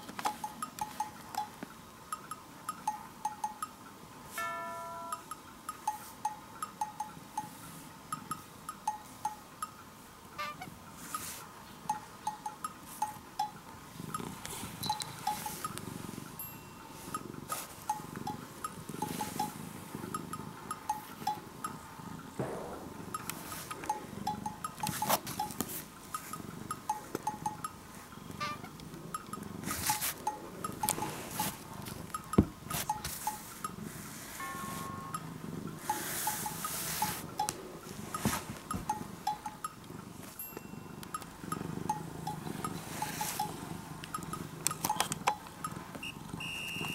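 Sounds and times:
light tinkling tones: 0.3s - 9.8s, 10.4s - 31.6s, 38.9s - 46.9s
plinking chime-like music: 4.4s - 7.6s, 16.4s - 17.2s, 34.4s - 37.2s
hand rubbing cat fur: 11.0s - 11.5s, 14.0s - 16.3s, 16.9s - 20.0s, 29.6s - 30.3s, 30.9s - 35.1s, 35.7s - 39.2s, 42.8s - 43.8s
low rumbling noise: 22.1s - 26.7s
sharp knock: 22.4s - 24.2s
steady pitched tone: 22.4s - 25.6s, 34.3s - 38.2s.

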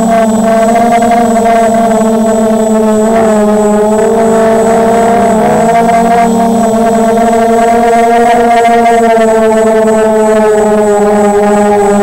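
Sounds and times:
drone propellers whining: 0.0s - 11.8s.

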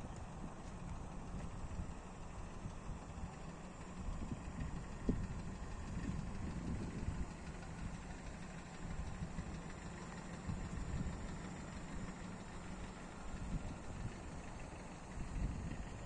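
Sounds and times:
wind buffeting microphone: 4.0s - 8.0s, 15.1s - 16.0s.

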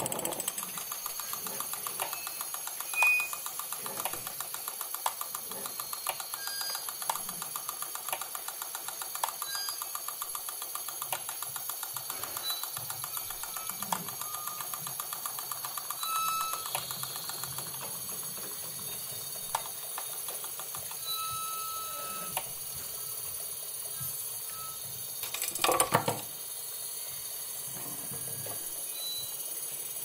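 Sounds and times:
relays clicking: 0.0s - 21.1s, 25.2s - 26.4s
short electronic beeps: 2.1s - 3.5s, 16.0s - 17.4s, 21.0s - 22.4s.

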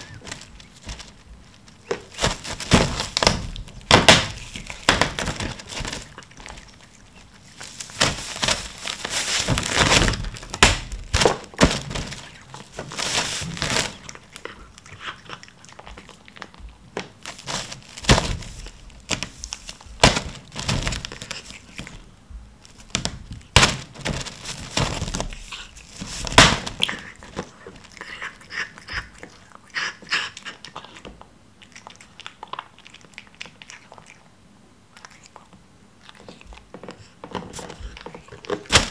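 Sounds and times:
plastic wrap crinkling: 0.0s - 14.5s, 16.4s - 28.0s, 37.3s - 38.9s
cat chewing food: 0.0s - 20.0s, 21.0s - 23.6s, 26.8s - 38.9s.

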